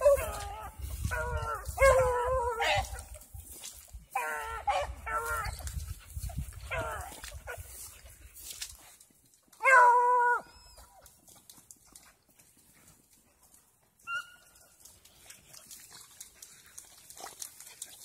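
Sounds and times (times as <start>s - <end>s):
hound baying: 0.0s - 3.2s, 4.1s - 5.6s, 9.6s - 10.9s.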